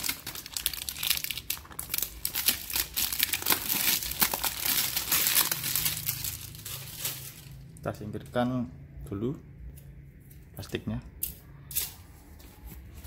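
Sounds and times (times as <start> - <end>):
plastic wrap crinkling: 0.0 - 7.9.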